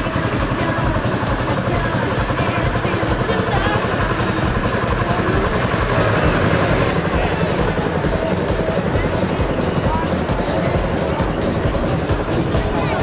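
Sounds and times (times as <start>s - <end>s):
crowd chatter: 0.0s - 13.0s
road train engine running: 0.0s - 13.0s.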